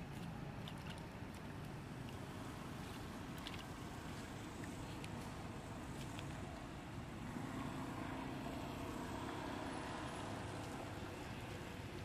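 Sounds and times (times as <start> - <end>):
monkeys splashing in water: 0.0 - 6.5.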